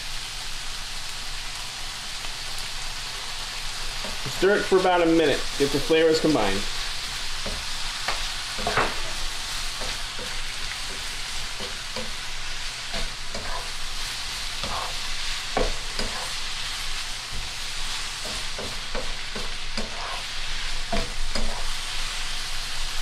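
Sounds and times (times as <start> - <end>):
vegetables sizzling in frying pan: 0.0 - 23.0
spatula scraping pan: 5.6 - 22.2.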